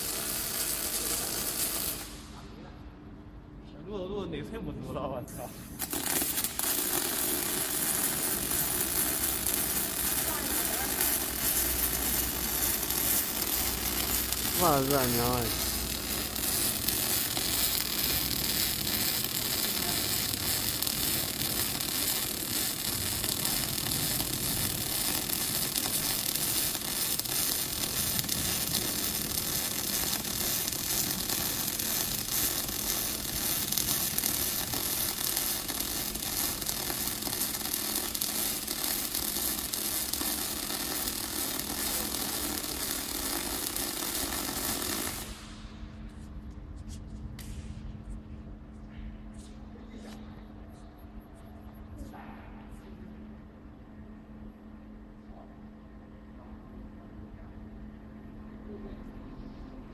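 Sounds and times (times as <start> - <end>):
welding arc hiss and crackle: 0.0 - 2.6, 5.2 - 48.2.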